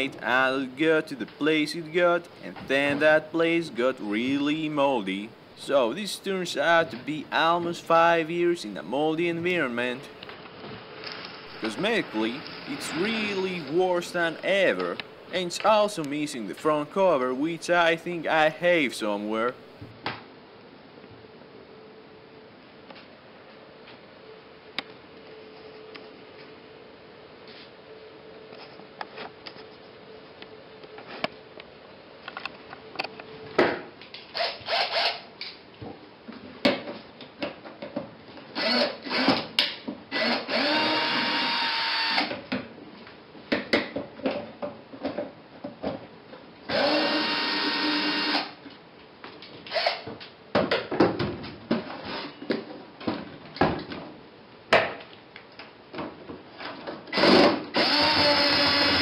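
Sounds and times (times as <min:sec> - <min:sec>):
cordless screwdriver running: 0:34.4 - 0:35.2, 0:38.6 - 0:39.3, 0:40.2 - 0:42.3, 0:46.7 - 0:48.5, 0:49.7 - 0:50.0, 0:57.2 - 0:59.0.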